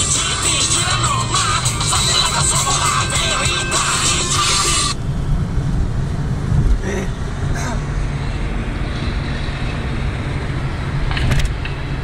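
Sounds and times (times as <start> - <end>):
music from car stereo: 0.0 - 5.0
car engine and road rumble: 0.0 - 12.0.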